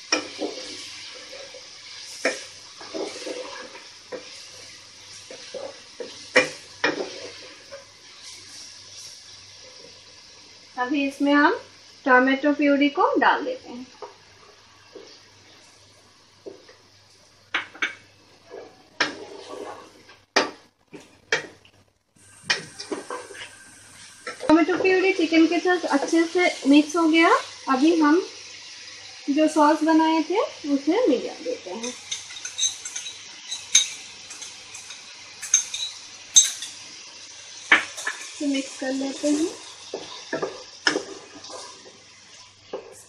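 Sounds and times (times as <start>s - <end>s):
wooden spatula knocking and scraping pot: 0.0s - 1.6s, 2.2s - 4.4s, 5.2s - 7.9s, 39.9s - 42.0s
kitchenware clinking against pot: 31.8s - 36.8s.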